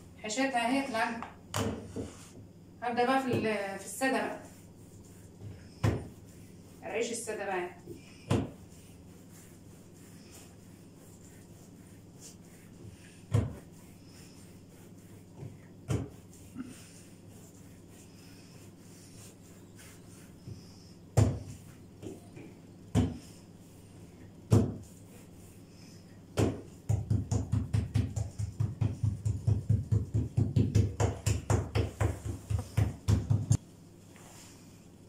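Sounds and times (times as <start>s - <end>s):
hands slapping bread dough: 1.2s - 2.2s, 5.0s - 6.4s, 7.9s - 13.8s, 14.7s - 16.9s, 19.8s - 23.4s, 24.5s - 25.0s, 26.3s - 33.6s.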